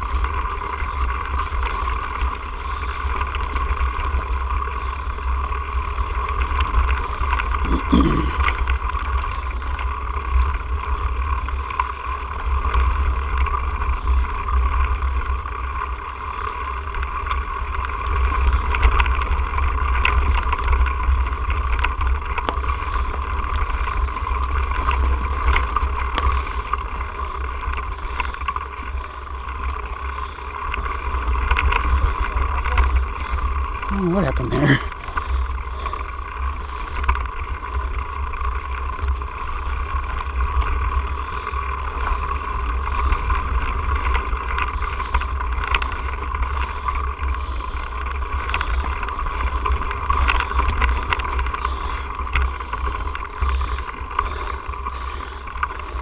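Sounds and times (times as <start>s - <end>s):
knocks and rattles from trail: 0.0s - 7.6s, 8.3s - 33.9s, 34.8s - 56.0s
bike tyre noise: 0.0s - 56.0s.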